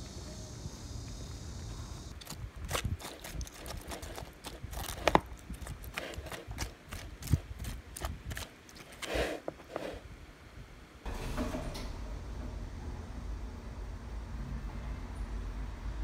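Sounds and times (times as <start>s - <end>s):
background noise: 0.0s - 16.0s
fork scraping plastic tub: 2.7s - 10.0s.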